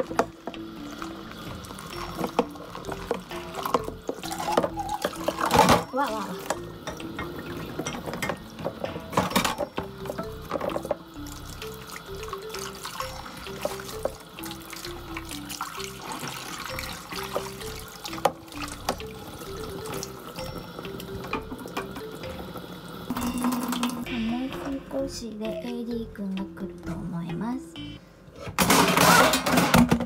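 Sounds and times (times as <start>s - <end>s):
dishes knocking against sink: 2.2s - 11.0s.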